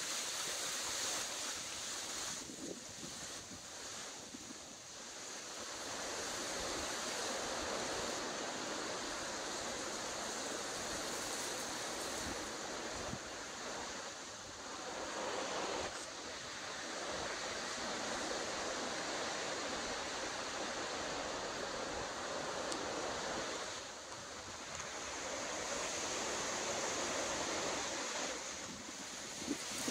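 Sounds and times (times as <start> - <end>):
strong gusty wind: 2.0 - 29.9.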